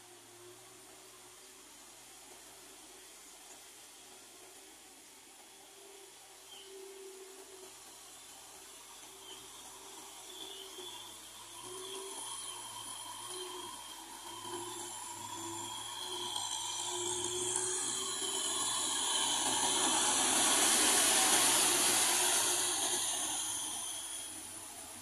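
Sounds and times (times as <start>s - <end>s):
tractor diesel engine running: 7.7s - 25.0s.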